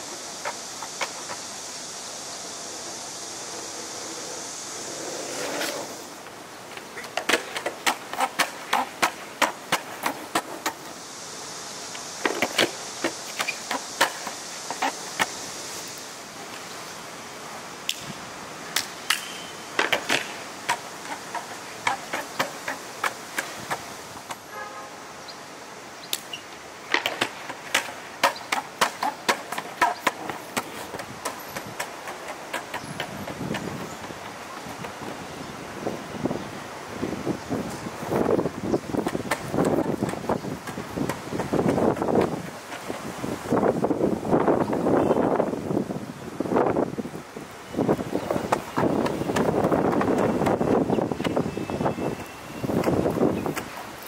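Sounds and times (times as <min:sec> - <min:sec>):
skateboard wheels rolling on stone: 0:00.0 - 0:11.0, 0:11.7 - 0:17.0, 0:18.7 - 0:24.5, 0:26.2 - 0:54.0
wheels clacking over seams: 0:02.7 - 0:10.9.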